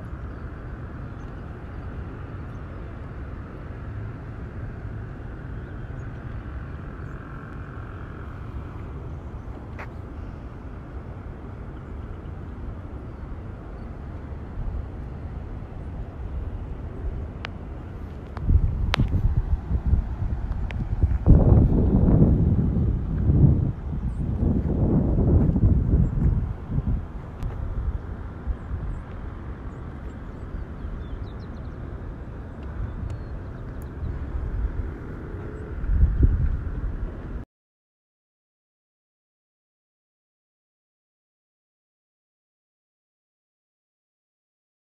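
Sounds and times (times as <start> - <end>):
low outdoor rumble: 0.0 - 37.4
wind buffeting microphone: 7.8 - 37.4.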